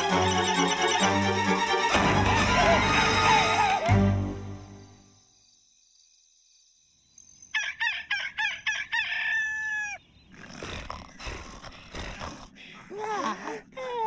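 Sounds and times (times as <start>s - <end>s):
rooster crowing: 7.5s - 10.0s
breathy rasping noise: 10.3s - 13.9s.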